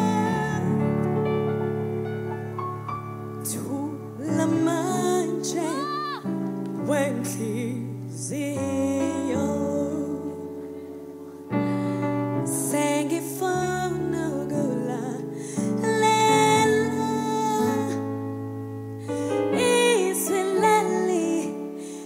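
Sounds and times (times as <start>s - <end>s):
woman singing: 0.0s - 1.2s, 3.4s - 10.9s, 11.5s - 18.3s, 19.0s - 22.0s
keyboard chords: 0.0s - 22.0s.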